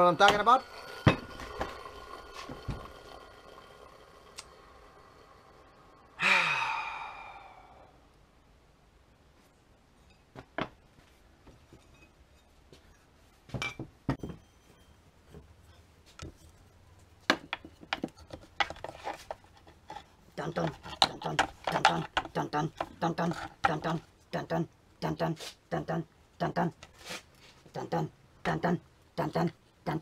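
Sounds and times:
metal parts knocking on workbench: 1.0 - 1.8
man sighing: 6.2 - 8.0.

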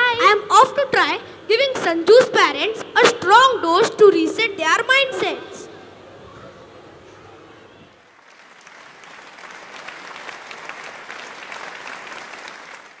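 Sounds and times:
audience clapping: 8.0 - 13.0.

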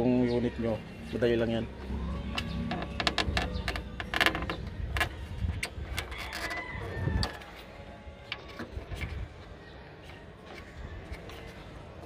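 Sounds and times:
rubber hose clicks and scrapes: 2.4 - 7.7.

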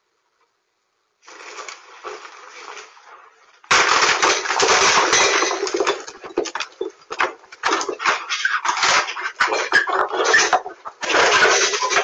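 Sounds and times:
crunching and scraping: 1.2 - 12.0
loud crash: 3.7 - 6.4.

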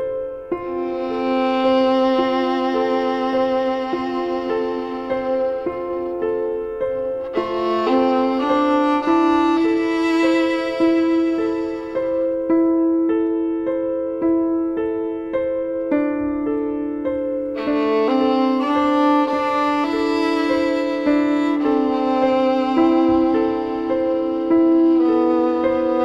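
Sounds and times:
slow instrumental music: 0.0 - 26.0.

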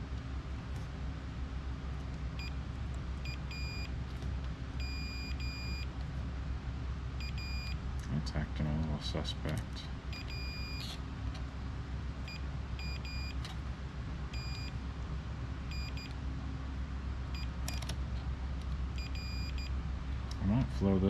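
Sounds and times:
steady low hum: 0.0 - 21.0
multimeter continuity beeps: 2.4 - 2.6, 3.2 - 3.9, 4.8 - 5.9, 7.2 - 7.8, 10.1 - 11.0, 12.2 - 13.4, 14.3 - 14.8, 15.7 - 16.2, 17.3 - 17.8, 19.0 - 19.8.

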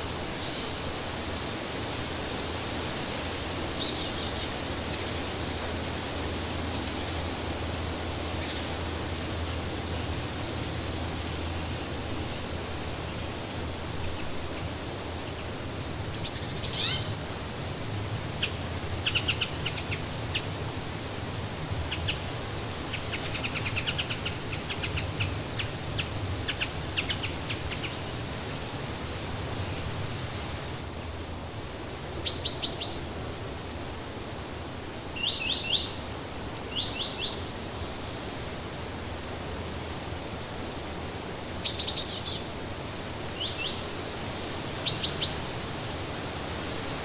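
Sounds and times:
steady rushing background noise: 0.0 - 32.2, 33.0 - 47.0
small birds chirping and trilling: 14.0 - 31.3, 32.0 - 42.5, 43.4 - 43.9, 44.8 - 45.5.

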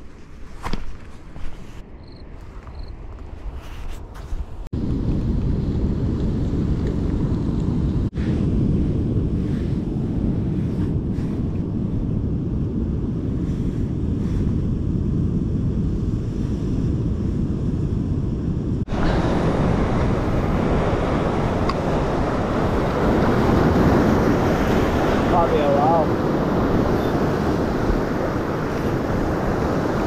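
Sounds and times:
wind rumbling on microphone: 0.0 - 30.0
sea surf against rocks: 18.8 - 30.0.

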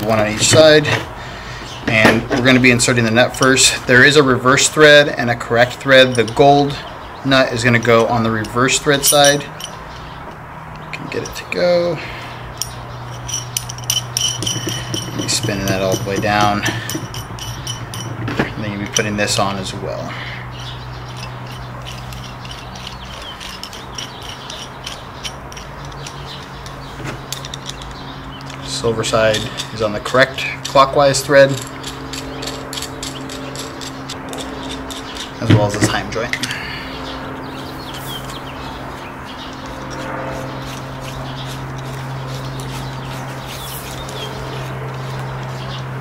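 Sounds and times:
birds chirping: 0.0 - 46.0
steady low hum: 0.0 - 46.0
small metal clicks and clinks: 6.0 - 6.8, 8.4 - 11.4, 12.5 - 19.4, 20.6 - 36.6.

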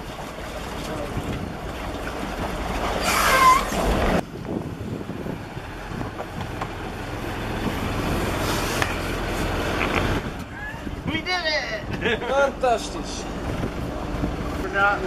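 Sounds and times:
boat engine running: 0.0 - 15.0
wind on microphone: 3.4 - 9.0, 9.9 - 11.3, 13.3 - 14.6.

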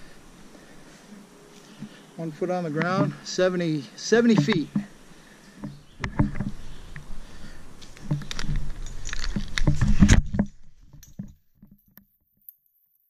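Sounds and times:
rope and clothing rustling: 0.0 - 13.0
climbing hardware clicking: 4.2 - 4.9, 7.9 - 12.7.

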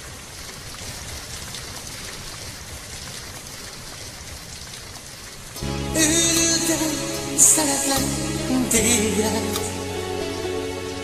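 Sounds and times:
steady rain: 0.0 - 11.0
music: 5.6 - 11.0.

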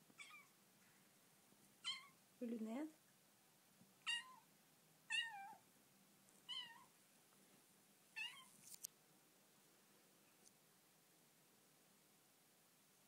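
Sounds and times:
kitten squeaky meows: 0.2 - 0.5, 1.8 - 2.2, 4.1 - 4.5, 5.1 - 5.6, 6.5 - 6.9, 8.2 - 8.5.

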